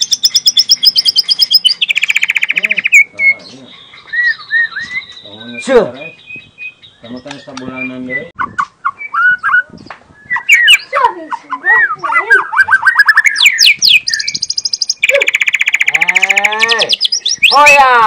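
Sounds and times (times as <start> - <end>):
bird singing whistles: 0.0 - 10.9, 11.7 - 17.8
bird rattling trill: 13.0 - 16.5.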